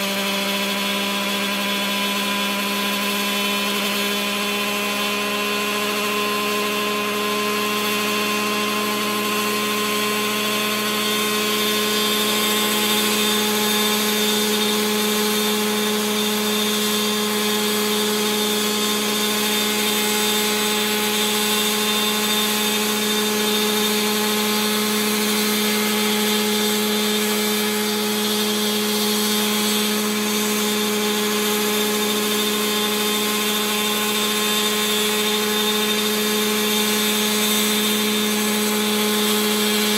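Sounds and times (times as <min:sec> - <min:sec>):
model helicopter engine and rotor: 0:00.0 - 0:39.9.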